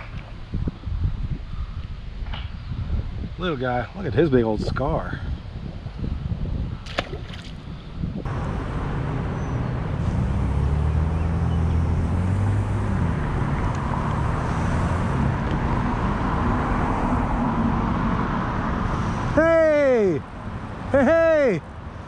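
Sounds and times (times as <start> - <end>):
vehicle engine hum: 8.2 - 19.4
road traffic passing: 8.2 - 22.0.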